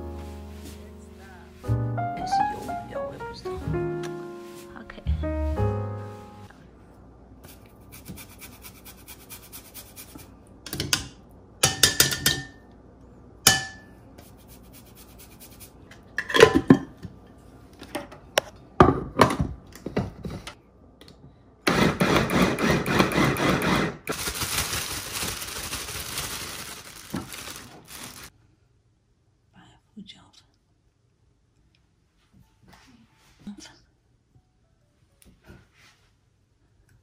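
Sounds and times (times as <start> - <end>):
kitchenware clanking: 10.7 - 12.6, 13.5 - 13.9, 16.2 - 17.0.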